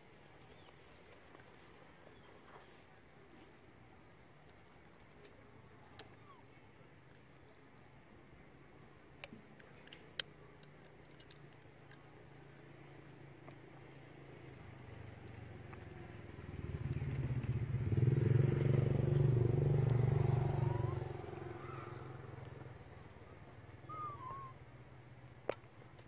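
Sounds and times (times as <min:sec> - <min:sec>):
motorcycle passing by: 0:14.1 - 0:24.5.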